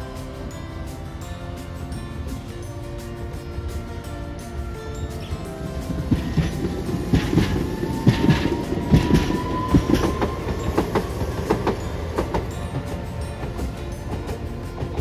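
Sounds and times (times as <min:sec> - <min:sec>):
tram wheels knocking over rail joints: 0:05.5 - 0:15.0.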